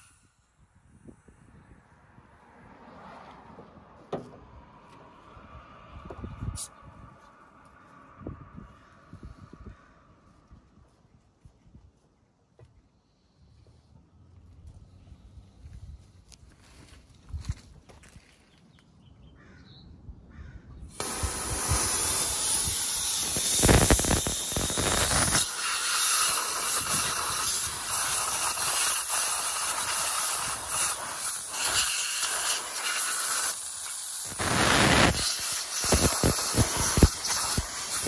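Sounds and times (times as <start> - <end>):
gas hissing from blow nozzle: 20.9 - 38.0.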